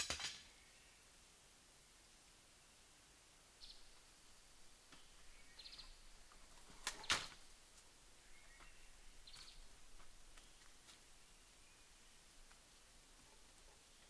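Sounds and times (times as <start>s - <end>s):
bird chirps: 3.6s - 4.0s, 5.0s - 7.4s, 8.2s - 12.2s.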